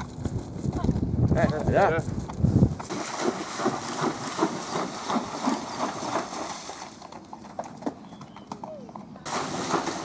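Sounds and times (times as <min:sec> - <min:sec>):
hooves splashing through water: 0:02.7 - 0:10.0.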